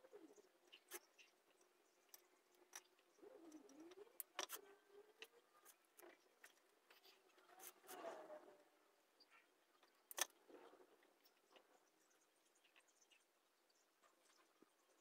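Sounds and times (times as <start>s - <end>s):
faint wavering hum: 0.0s - 15.0s
wire bending clicks and ticks: 0.6s - 7.8s, 9.8s - 10.5s.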